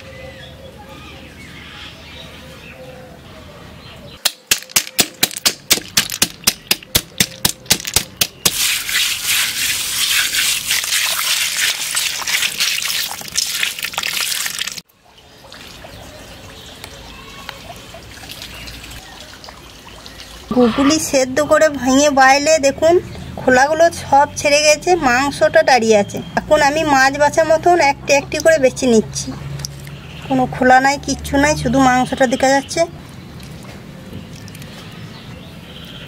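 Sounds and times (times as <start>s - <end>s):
snail shells cracking: 4.2s - 8.6s
wet crunching of shells: 4.2s - 14.8s.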